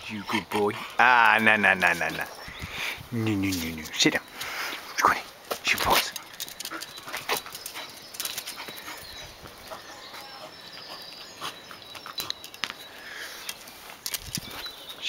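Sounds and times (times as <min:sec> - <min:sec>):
short clicks and rustles: 0:13.4 - 0:14.7.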